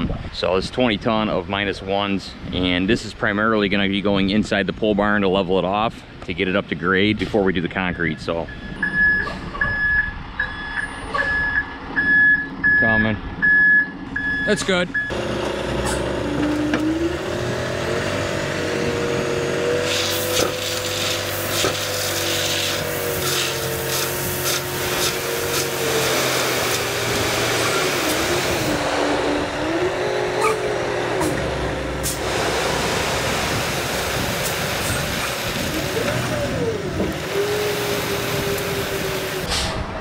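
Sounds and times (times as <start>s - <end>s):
truck engine revving: 9.8s - 40.0s.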